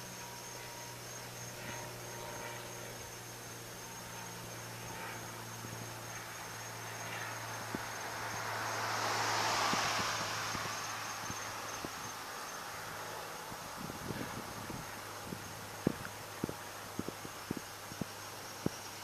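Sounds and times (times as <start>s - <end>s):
crickets chirping: 0.0s - 19.0s
low hum: 0.0s - 19.0s
broad rushing noise: 4.9s - 19.0s.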